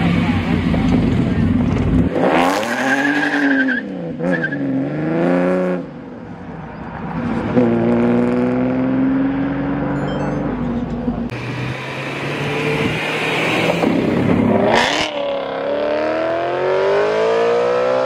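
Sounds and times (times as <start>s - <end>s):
car engine revving: 11.2s - 18.0s.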